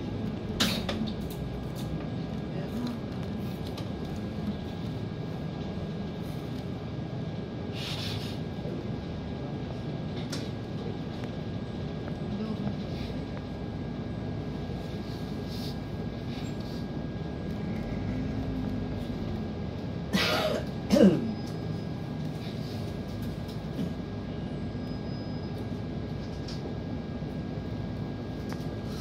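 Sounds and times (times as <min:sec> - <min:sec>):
city street traffic noise: 0:00.0 - 0:29.0
person clearing throat and coughing: 0:00.6 - 0:01.0, 0:20.1 - 0:21.3.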